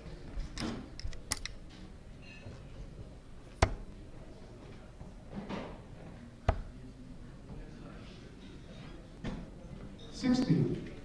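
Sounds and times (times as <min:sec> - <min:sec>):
darts striking dartboard: 0:03.5 - 0:04.0, 0:06.4 - 0:06.8.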